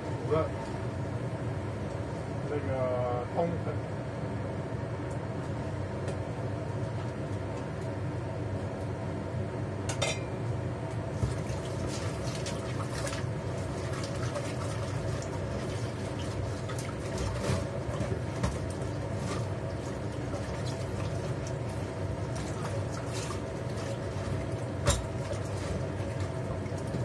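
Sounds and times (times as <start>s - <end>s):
steady hum: 0.0s - 27.0s
pots and utensils clinking: 9.9s - 10.4s.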